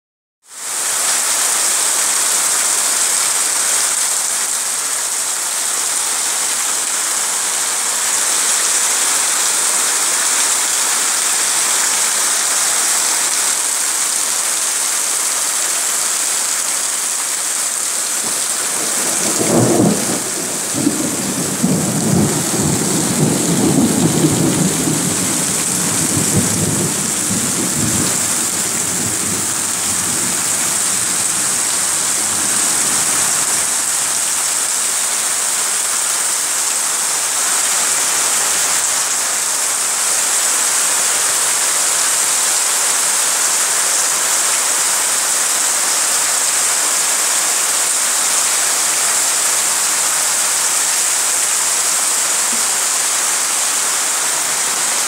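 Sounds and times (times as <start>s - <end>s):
heavy rain pouring: 0.5s - 55.0s
thunder rumbling: 18.2s - 33.9s.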